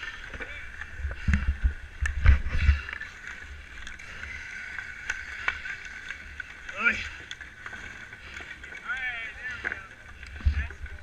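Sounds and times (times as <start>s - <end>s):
ice skates scraping on ice: 2.4s - 11.0s.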